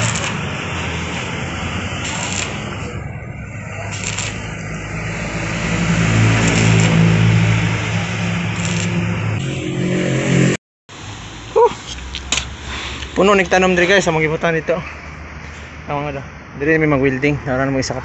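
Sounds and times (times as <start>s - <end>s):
welding arc crackling: 0.0s - 9.6s
welder low hum: 0.0s - 13.6s.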